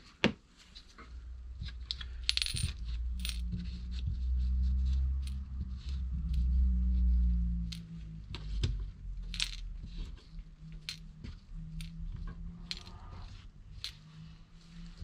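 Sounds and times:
small metal parts clinking: 0:01.6 - 0:03.6, 0:04.8 - 0:06.5, 0:07.6 - 0:08.0, 0:09.2 - 0:09.7, 0:10.7 - 0:14.1.

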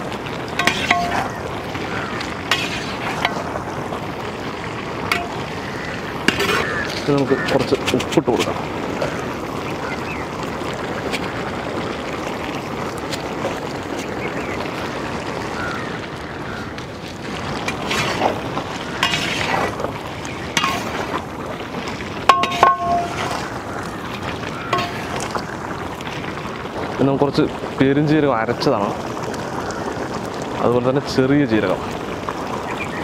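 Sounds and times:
metal ladle scraping in a pot: 0:00.6 - 0:01.8, 0:02.4 - 0:03.6, 0:06.2 - 0:08.1, 0:17.6 - 0:21.3, 0:22.3 - 0:23.7, 0:24.7 - 0:25.4
ladle knocking against pot: 0:22.3 - 0:23.4.

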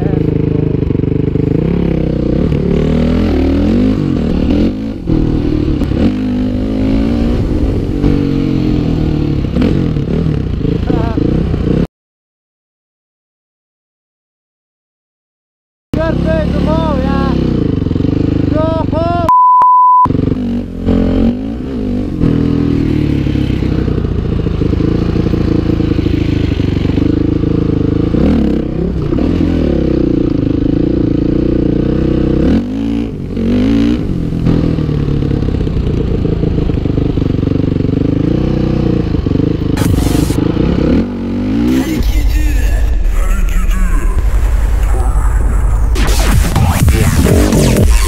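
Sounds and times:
dirt bike engine revving: 0:00.0 - 0:11.9, 0:16.0 - 0:19.1, 0:20.1 - 0:42.8.

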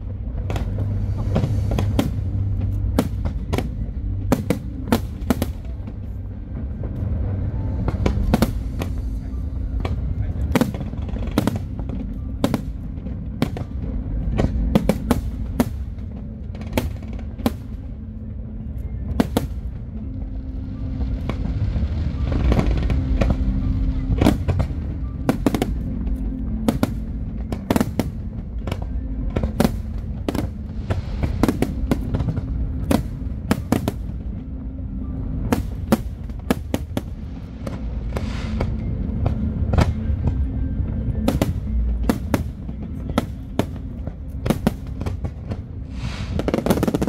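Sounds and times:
low rumble: 0:00.0 - 0:47.0
fireworks bursting: 0:00.1 - 0:18.0, 0:19.1 - 0:20.0, 0:20.8 - 0:34.6, 0:35.4 - 0:47.0
hissing crackle: 0:45.8 - 0:47.0.

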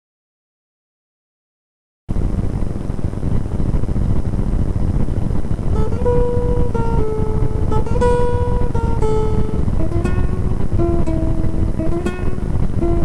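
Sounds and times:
low rumble: 0:02.1 - 0:13.0
acoustic guitar picking: 0:05.7 - 0:13.0.

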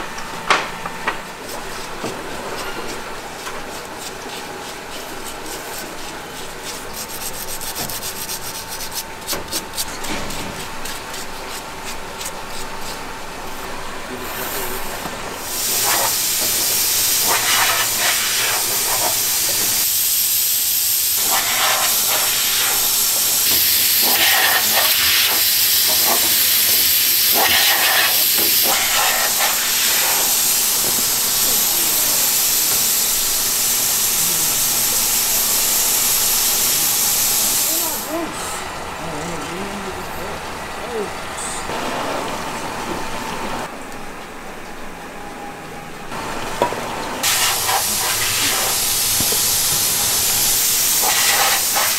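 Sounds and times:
loud steady hiss: 0:13.5 - 0:41.9, 0:47.2 - 0:51.9.

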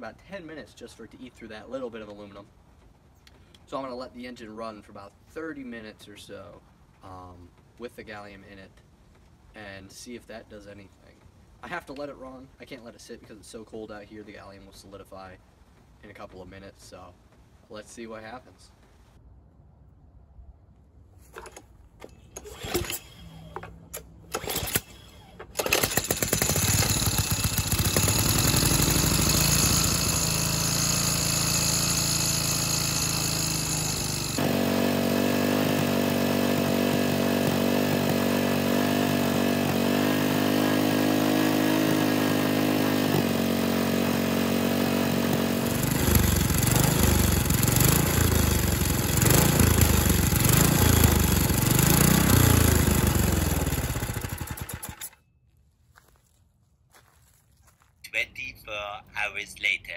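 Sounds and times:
pull-start cord tugs: 0:21.3 - 0:55.2
snowblower engine running: 0:24.3 - 0:55.2.

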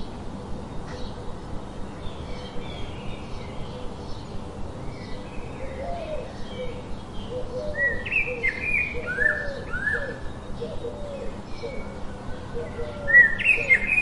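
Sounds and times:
outdoor background noise: 0:00.0 - 0:14.0
lower arched bird calls: 0:01.9 - 0:14.0
birds chirping and whistling: 0:02.1 - 0:14.0.

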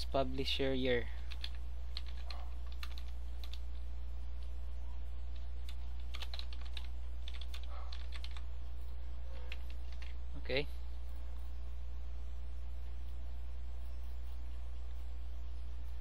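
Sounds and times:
steady low hum: 0:00.0 - 0:16.0
keyboard typing: 0:01.2 - 0:04.5, 0:05.3 - 0:08.5, 0:09.4 - 0:10.2.

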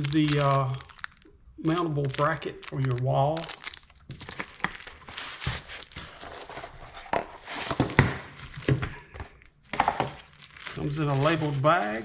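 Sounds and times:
plastic bag crinkling: 0:00.0 - 0:12.0
cardboard box rustling: 0:04.3 - 0:08.7.

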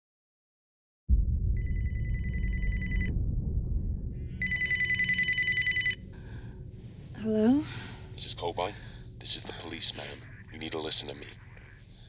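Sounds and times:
low rumble: 0:01.1 - 0:10.6
telephone ringing: 0:04.4 - 0:06.0.

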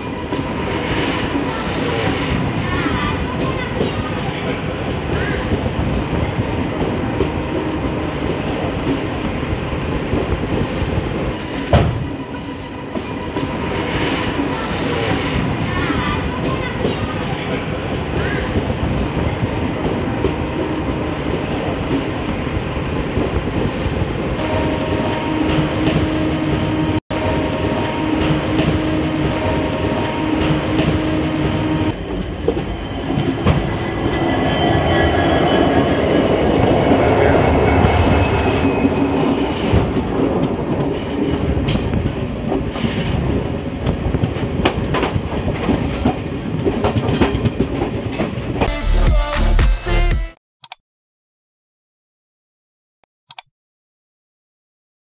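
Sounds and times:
train wheel squealing: 0:00.0 - 0:04.6, 0:10.6 - 0:17.6, 0:23.7 - 0:26.4, 0:27.2 - 0:48.5
loud rush beside locomotive: 0:00.0 - 0:48.7
train rumble: 0:00.0 - 0:48.7.

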